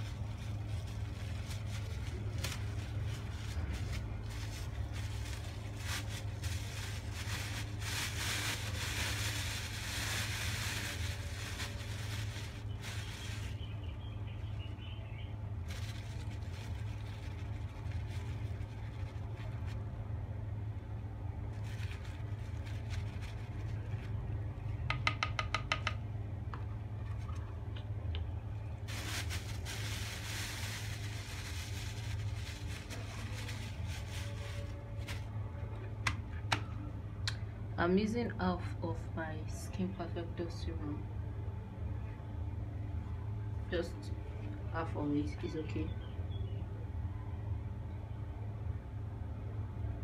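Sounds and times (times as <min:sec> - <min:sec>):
rustling handling noises: 0:00.0 - 0:14.8, 0:15.4 - 0:20.1, 0:21.4 - 0:24.4, 0:28.6 - 0:36.7
steady low hum: 0:00.0 - 0:25.0, 0:25.9 - 0:50.0.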